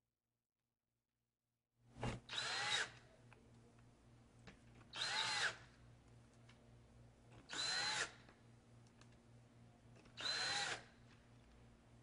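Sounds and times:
cordless drill whirring: 2.3s - 3.0s, 4.9s - 5.7s, 7.5s - 8.2s, 10.2s - 10.9s.

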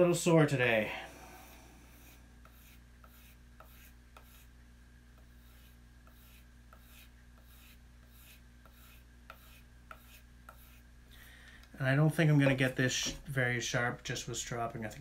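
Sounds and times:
knife stropping strokes: 1.9s - 4.5s, 5.2s - 10.9s.

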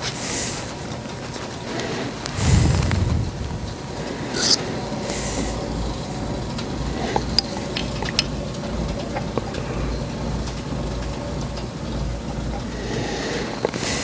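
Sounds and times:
steady low hum: 0.6s - 14.0s.

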